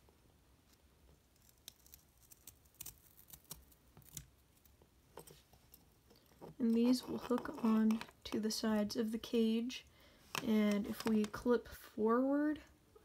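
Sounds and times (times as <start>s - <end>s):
paper clip clicking and scratching: 10.3s - 11.4s.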